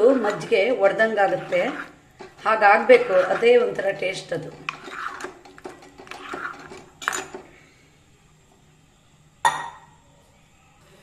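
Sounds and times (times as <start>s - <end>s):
ladle scraping a metal pot: 0.0s - 7.4s.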